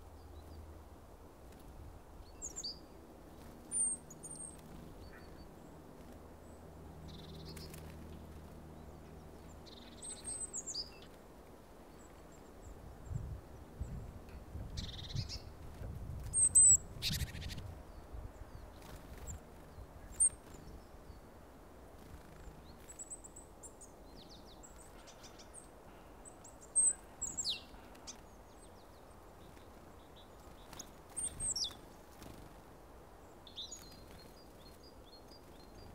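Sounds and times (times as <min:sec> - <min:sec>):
songbirds chirping: 0:00.0 - 0:35.9.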